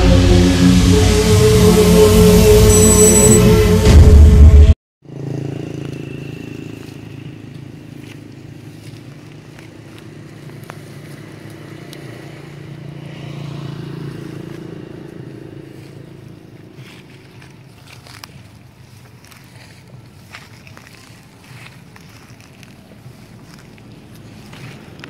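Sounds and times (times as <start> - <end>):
steady engine hum: 5.0 - 25.0.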